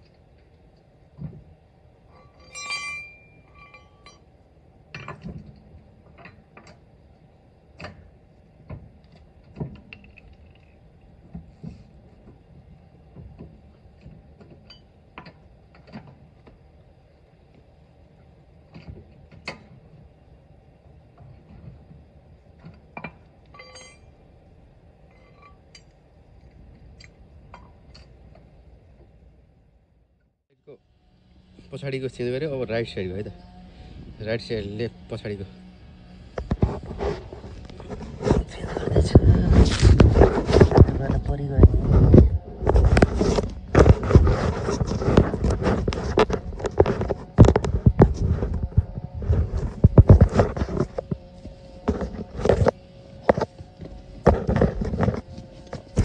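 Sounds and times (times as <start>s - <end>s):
short ringing clink: 2.2s - 4.2s, 23.5s - 24.1s.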